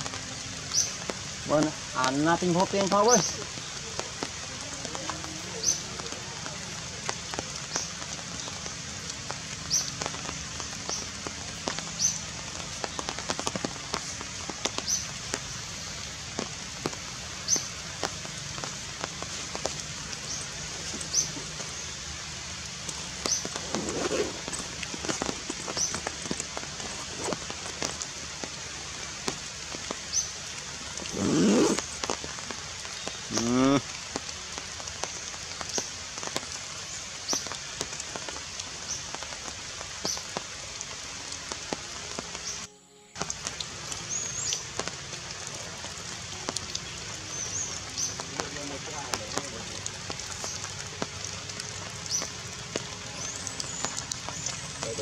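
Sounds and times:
steady hiss: 0.0s - 55.0s
low voice-like sound: 33.3s - 33.8s.

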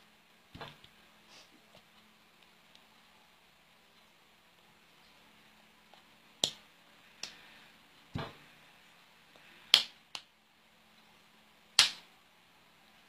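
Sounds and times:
faint steady hum: 0.0s - 13.0s
hands clapping and slapping: 9.7s - 10.3s, 11.8s - 12.1s.

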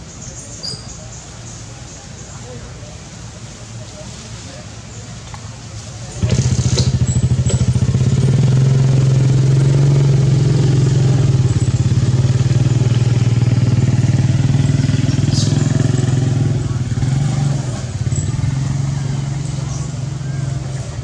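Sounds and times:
small engine running: 6.2s - 21.0s.

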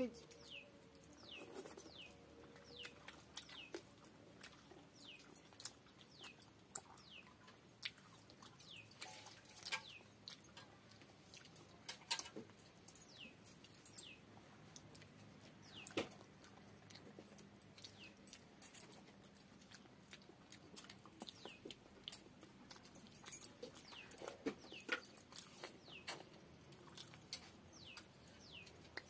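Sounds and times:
small bird chirping: 0.0s - 7.8s, 12.9s - 14.3s, 15.4s - 16.2s, 21.2s - 29.0s.

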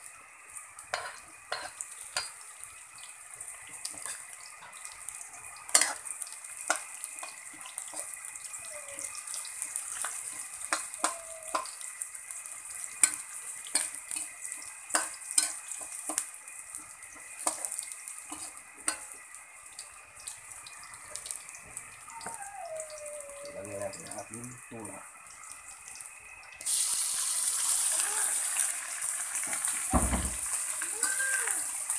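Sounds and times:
onion and garlic sizzling in oil: 0.0s - 31.9s
metal spatula scraping a wok: 0.9s - 1.8s, 5.7s - 6.1s, 17.4s - 19.1s.

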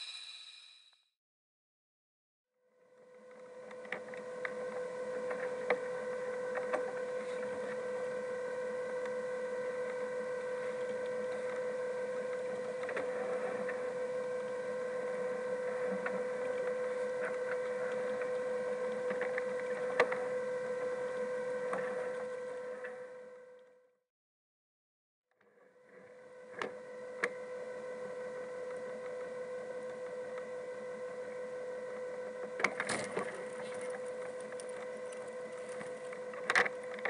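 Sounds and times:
high-pitched hum: 0.0s - 1.1s.

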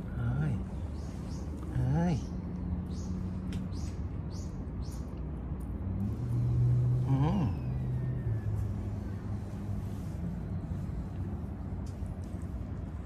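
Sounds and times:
distant engine hum: 0.0s - 13.0s
rising and falling call: 6.4s - 10.8s.

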